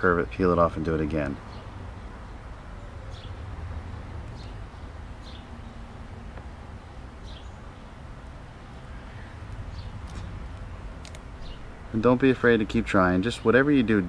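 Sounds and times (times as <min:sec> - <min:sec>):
high falling bird chirps: 0:01.4 - 0:06.0, 0:07.2 - 0:12.0.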